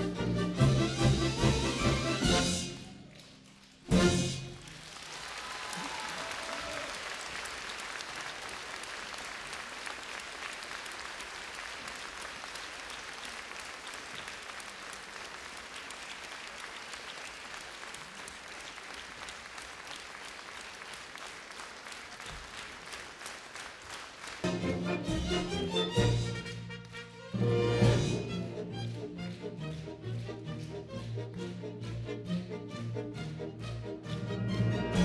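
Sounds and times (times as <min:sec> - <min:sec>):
audience applauding: 0:02.2 - 0:25.1.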